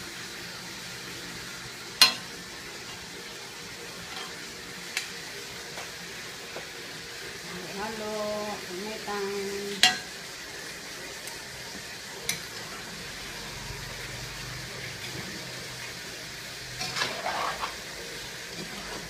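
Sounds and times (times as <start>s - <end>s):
food sizzling in a pan: 0.0s - 19.0s
metal spoon stirring: 16.8s - 17.9s, 18.5s - 19.0s.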